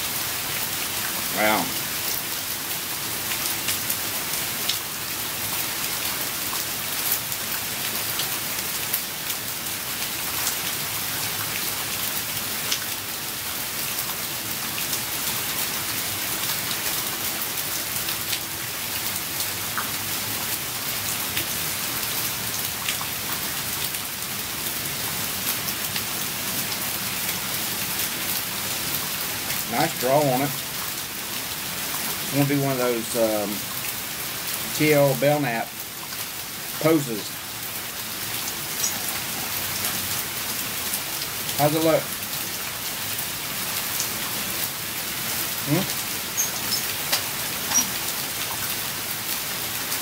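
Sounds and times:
steady rain hiss: 0.0s - 50.0s
rain drop ticks: 45.6s - 48.7s.

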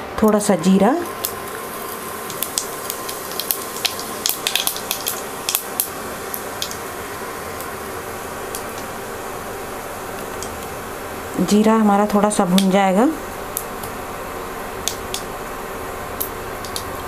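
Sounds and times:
seeds sizzling and crackling in oil: 0.2s - 17.0s.

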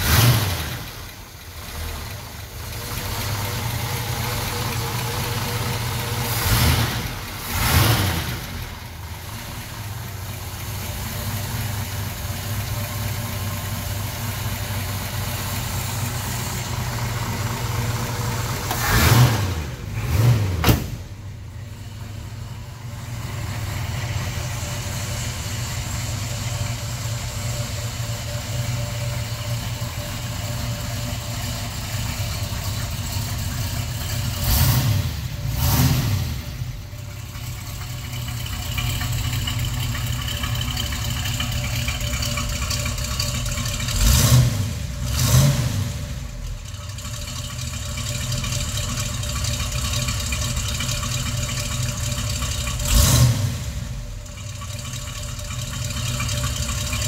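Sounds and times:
car engine idling and revving: 0.0s - 57.0s.

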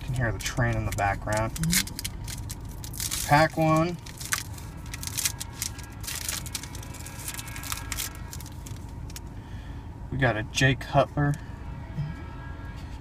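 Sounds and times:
low steady rumble: 0.0s - 13.0s
foil wrapper crinkling and tearing: 0.1s - 9.3s.

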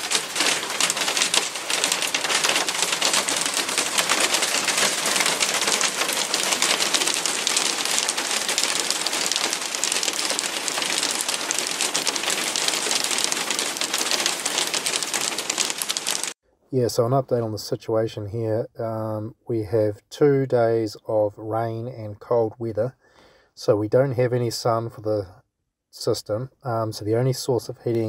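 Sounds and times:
heavy rain hiss: 0.0s - 16.4s.

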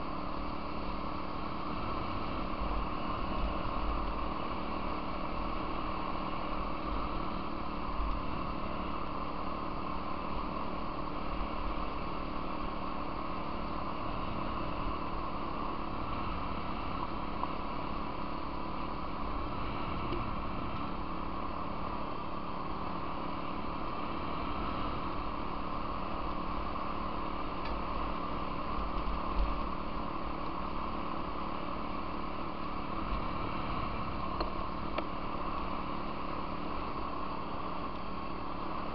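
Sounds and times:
off-road vehicle engine running: 0.0s - 38.9s.

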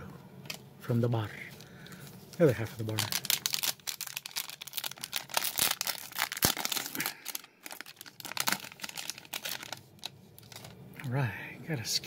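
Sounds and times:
wrapper crinkling and tearing: 1.9s - 10.8s.

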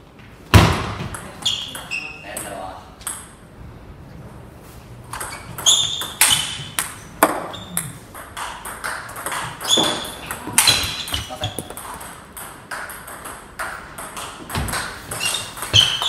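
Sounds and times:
table tennis ball clicks: 6.8s - 14.9s.

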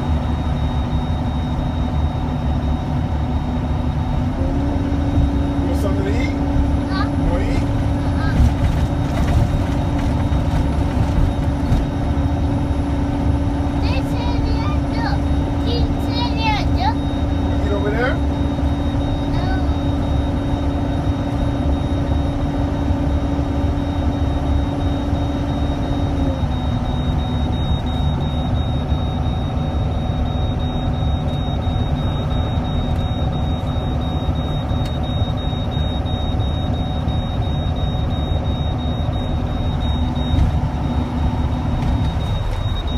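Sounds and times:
truck engine and road drone: 0.0s - 42.9s.

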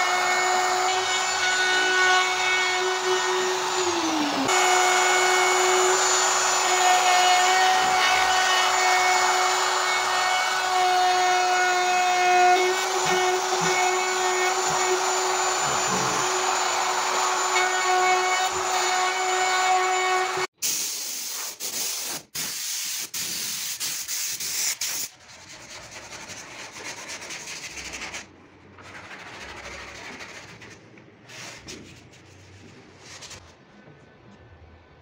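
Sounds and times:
power tool whining: 0.0s - 20.5s.

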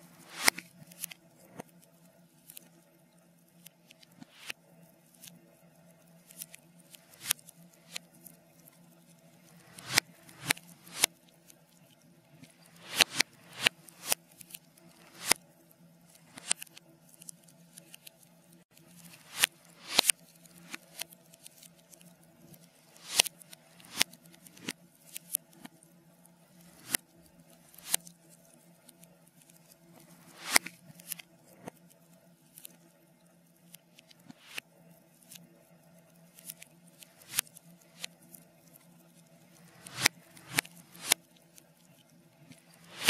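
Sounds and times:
reversed fire crackling: 0.0s - 1.7s, 6.3s - 11.2s, 12.3s - 15.4s, 18.9s - 21.1s, 39.5s - 41.2s, 42.5s - 43.0s.

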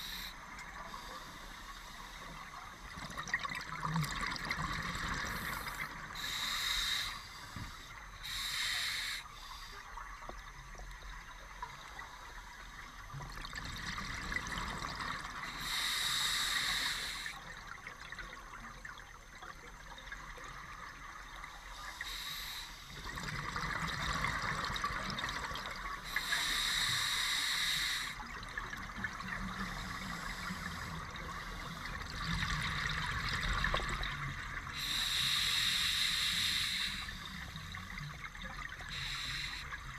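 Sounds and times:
regulator hiss: 0.0s - 2.9s, 5.3s - 10.0s, 15.4s - 17.4s, 21.8s - 23.0s, 26.0s - 28.3s, 34.6s - 37.9s, 38.8s - 39.9s
exhaled bubbles underwater: 2.2s - 6.5s, 10.1s - 15.8s, 22.9s - 26.6s, 28.1s - 35.1s.

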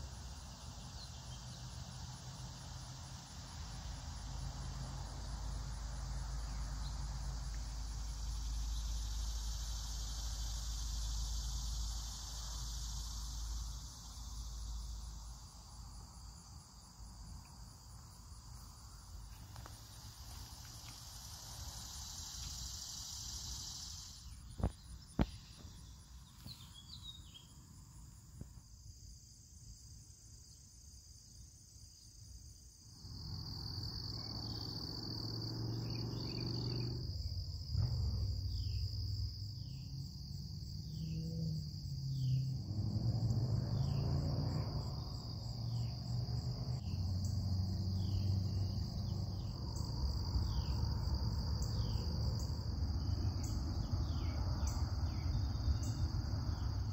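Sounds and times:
crickets and insects chorus: 0.0s - 56.9s
low rustling rumble: 37.1s - 40.8s.

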